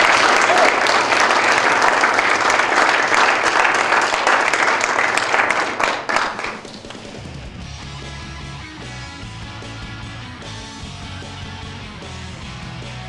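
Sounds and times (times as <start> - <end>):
audience applauding: 0.0 - 7.3
guitar music: 7.2 - 13.0.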